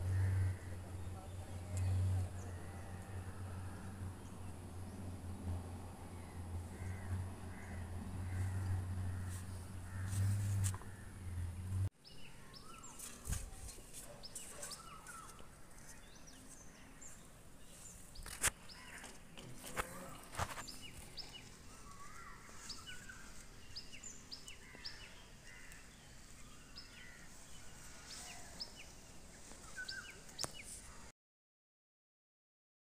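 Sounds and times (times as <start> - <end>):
low hum: 0.0 - 11.9
small birds chirping: 6.0 - 31.1.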